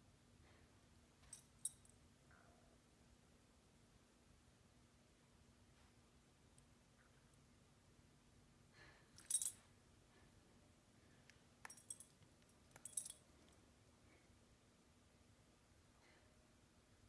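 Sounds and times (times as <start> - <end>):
dog collar tags jingling: 1.3 - 2.0, 9.2 - 9.6, 11.6 - 13.3.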